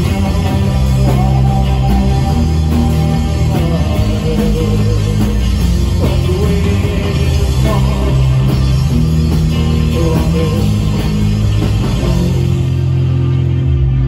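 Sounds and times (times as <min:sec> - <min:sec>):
person singing: 0:00.0 - 0:08.6, 0:09.6 - 0:11.1
rock band playing live: 0:00.0 - 0:14.0.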